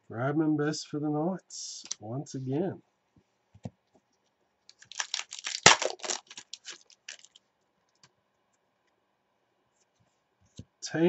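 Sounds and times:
cards being shuffled: 0:04.7 - 0:07.4.

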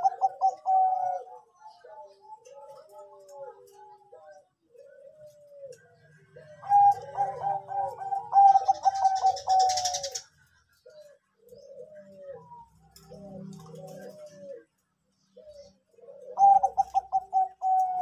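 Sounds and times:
dove cooing: 0:00.0 - 0:18.0.

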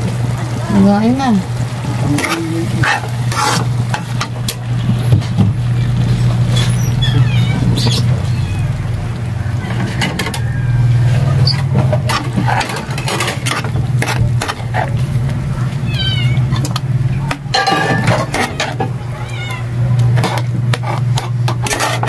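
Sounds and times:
cat meowing: 0:06.8 - 0:08.8, 0:15.6 - 0:16.6, 0:19.1 - 0:19.8
metal ladle scraping wok: 0:09.6 - 0:15.0, 0:20.2 - 0:22.0.

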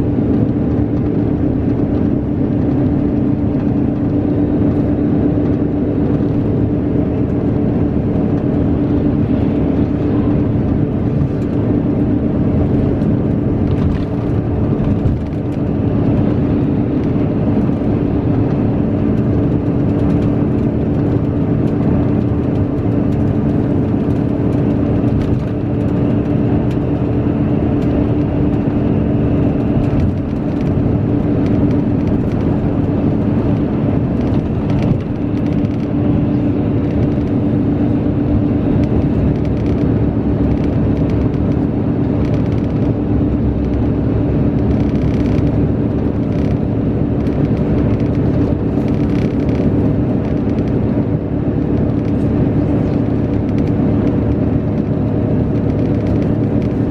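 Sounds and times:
bus engine drone: 0:00.0 - 0:56.9
road and tyre noise: 0:00.0 - 0:56.9.

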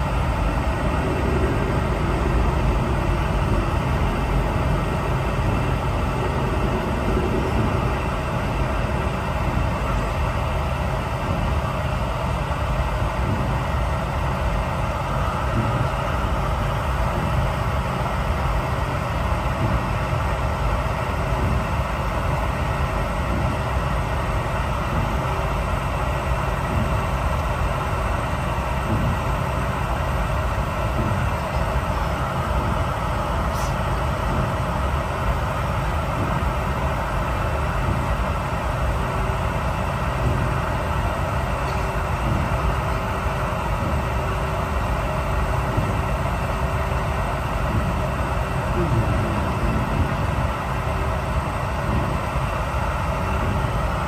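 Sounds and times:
rush of air: 0:00.0 - 0:09.9
aircraft cabin hum: 0:00.0 - 0:25.5, 0:26.6 - 0:54.0.

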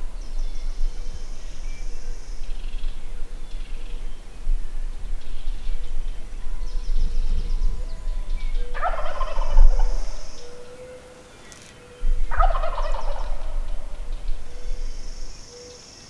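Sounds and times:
low rumble: 0:00.0 - 0:10.6, 0:12.0 - 0:15.4
turkey gobbling: 0:07.9 - 0:11.3, 0:12.0 - 0:14.9.

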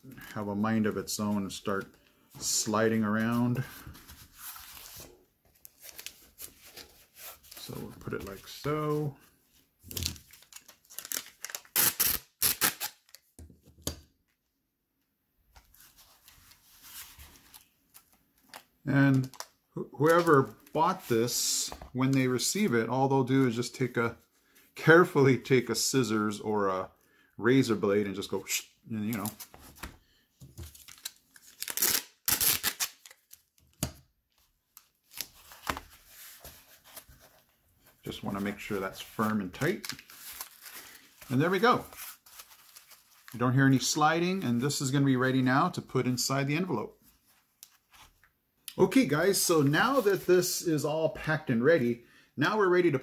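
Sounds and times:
packing tape crackling: 0:09.9 - 0:13.2, 0:30.8 - 0:33.4.

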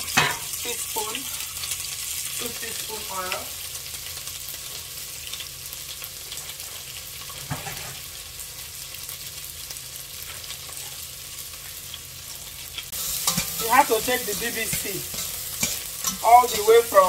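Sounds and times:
oil sizzling in frying pan: 0:00.0 - 0:17.0.

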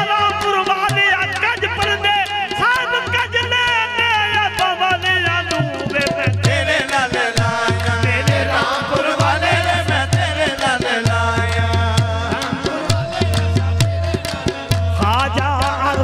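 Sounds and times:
harmoniums playing: 0:00.0 - 0:16.0
voices singing: 0:05.2 - 0:16.0
hand drum beat: 0:05.5 - 0:16.0.

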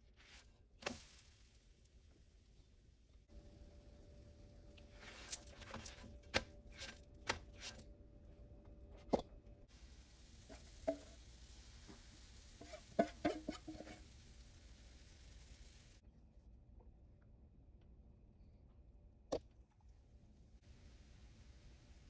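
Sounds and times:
spatula scraping on griddle: 0:12.3 - 0:14.2.

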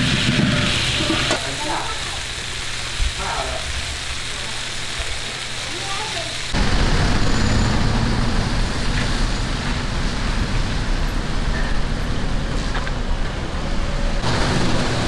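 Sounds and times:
cars passing on wet road: 0:05.8 - 0:15.0.

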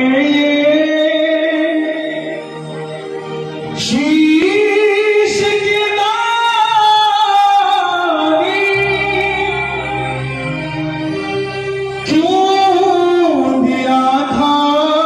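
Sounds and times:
man singing devotional song: 0:00.0 - 0:02.7, 0:03.5 - 0:10.4, 0:12.0 - 0:15.0
low instrumental accompaniment: 0:00.0 - 0:15.0.

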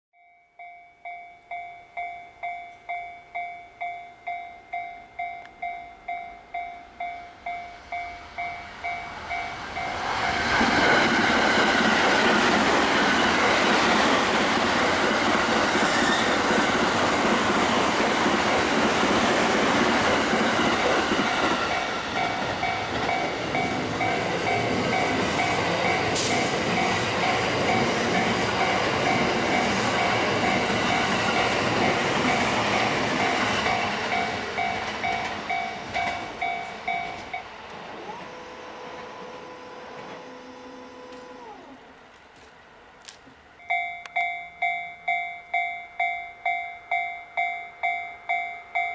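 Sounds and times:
train rail rumble: 0:06.2 - 0:40.5.

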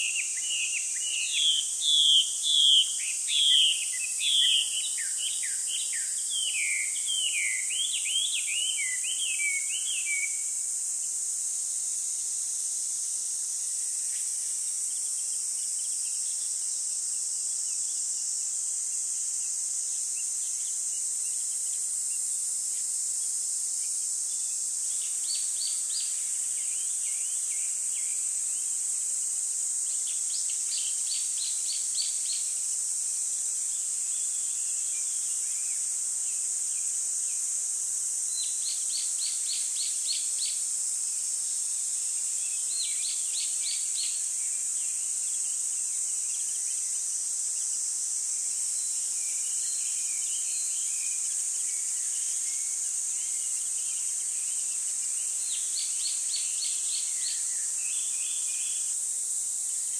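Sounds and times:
small birds chirping: 0:00.0 - 0:10.4, 0:24.3 - 0:28.8
steady high hiss: 0:00.0 - 0:59.9.

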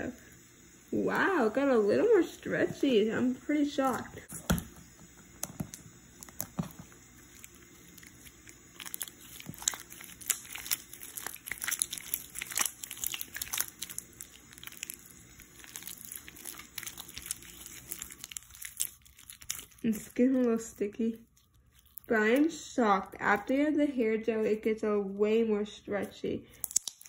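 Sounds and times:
slime squished with sticky clicks: 0:07.3 - 0:19.8, 0:26.6 - 0:27.0.

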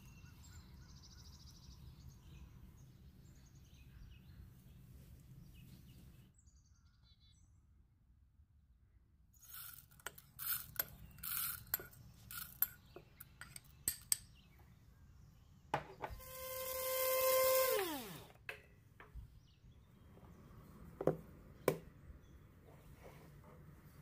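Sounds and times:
kitchen appliance motor running: 0:16.0 - 0:18.4.

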